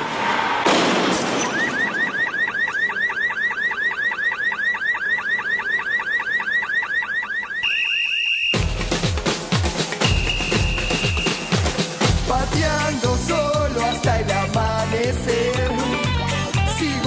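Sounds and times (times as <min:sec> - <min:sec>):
electronic alarm warbling: 0:01.4 - 0:08.6.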